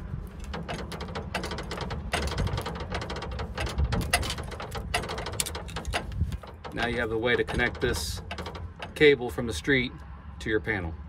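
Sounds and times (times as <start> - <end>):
handling knocks: 0.0 - 9.3.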